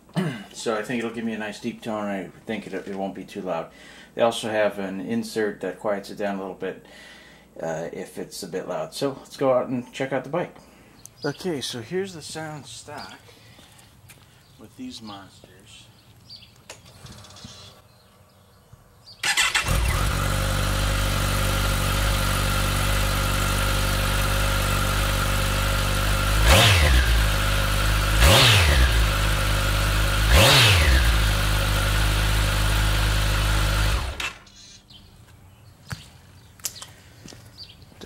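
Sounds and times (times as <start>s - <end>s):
motorcycle engine idling and revving: 19.2s - 34.5s.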